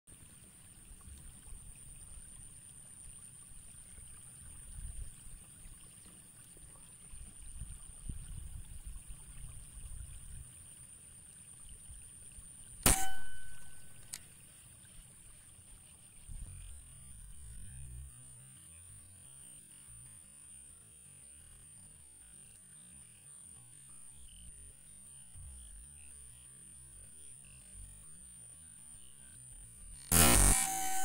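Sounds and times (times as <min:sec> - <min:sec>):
air rifle shot with metallic ringing: 0:12.8 - 0:14.2, 0:30.1 - 0:31.0
short click: 0:12.8 - 0:14.2.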